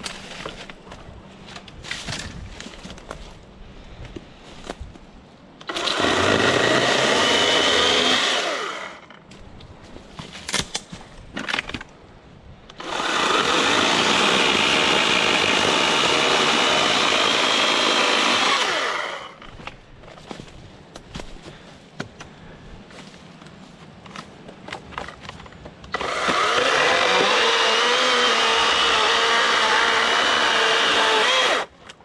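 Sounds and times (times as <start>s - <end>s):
chainsaw cutting branches: 5.6s - 9.1s, 12.8s - 19.4s, 25.9s - 31.7s.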